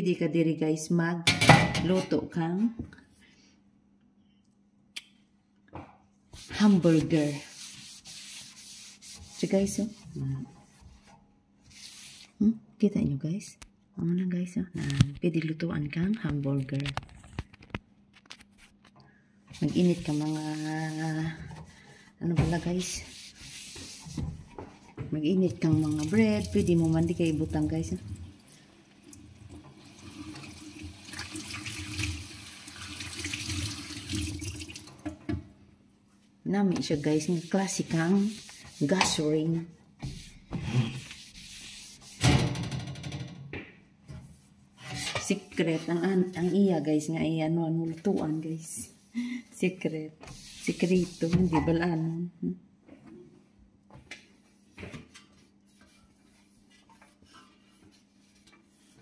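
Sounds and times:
tap water running into sink: 0:25.7 - 0:28.4, 0:29.0 - 0:35.4.

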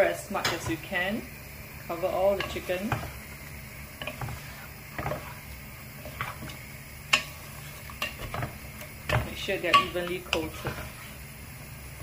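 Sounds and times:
wooden spatula stirring in pot: 0:01.7 - 0:12.0
spatula scraping and knocking pot: 0:02.0 - 0:11.3.

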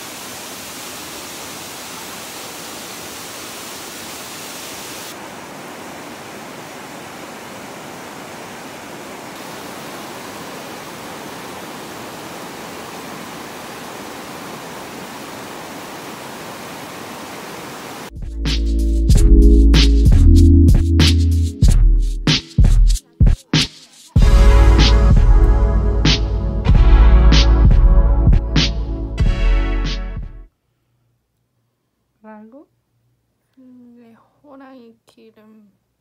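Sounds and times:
mountain stream rushing: 0:00.0 - 0:18.1
music: 0:18.1 - 0:30.5.

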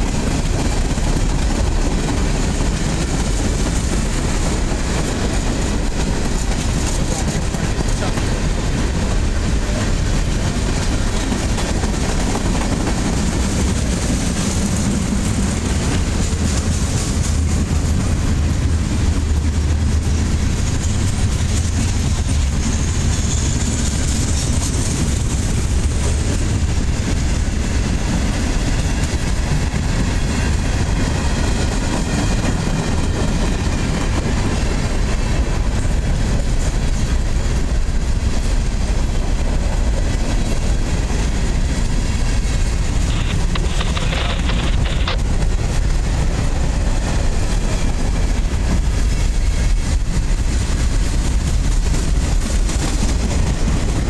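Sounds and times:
freight train wheels rumbling: 0:00.0 - 0:54.0.

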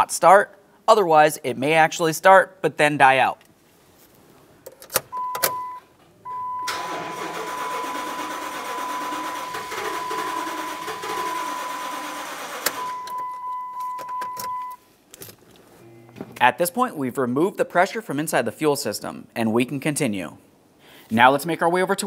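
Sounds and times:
high warning tone: 0:05.2 - 0:14.8
starter motor cranking engine: 0:06.7 - 0:13.2.

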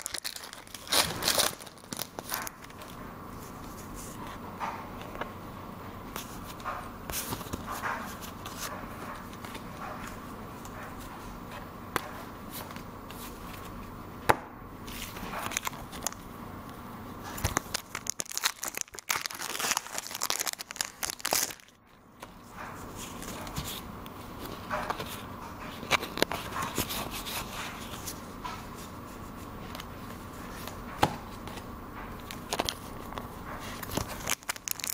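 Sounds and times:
foil wrapper crinkling and tearing: 0:00.0 - 0:02.9, 0:15.0 - 0:16.2, 0:17.3 - 0:21.8, 0:33.7 - 0:34.9
cards clicking and rustling: 0:00.0 - 0:03.0, 0:14.9 - 0:16.2, 0:17.3 - 0:22.3, 0:30.6 - 0:34.9.

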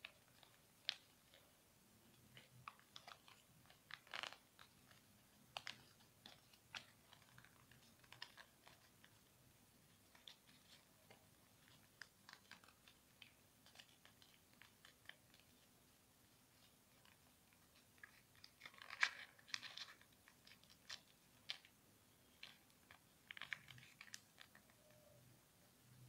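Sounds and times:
paper crackling as folded: 0:02.2 - 0:09.3, 0:09.9 - 0:15.7, 0:16.3 - 0:25.2.

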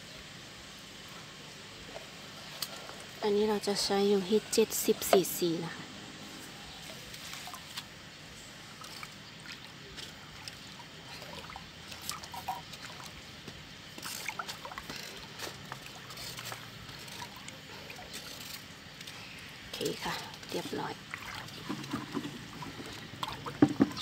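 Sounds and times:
water sloshing and splashing: 0:06.7 - 0:24.0
liquid pouring into water: 0:13.9 - 0:18.8, 0:20.4 - 0:24.0.

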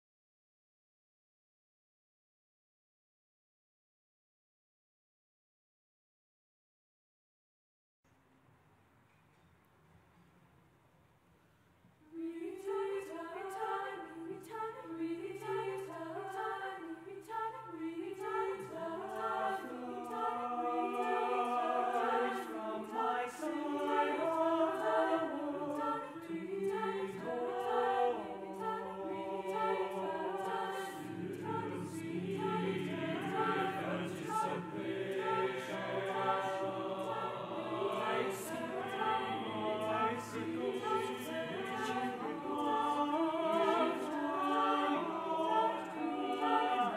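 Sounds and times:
choir singing a cappella: 0:12.1 - 0:46.9.

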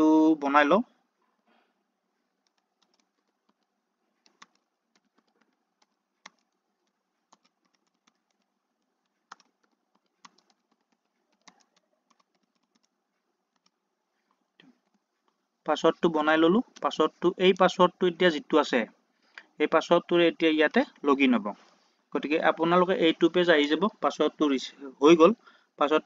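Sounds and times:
computer keyboard keystrokes: 0:02.4 - 0:12.9.

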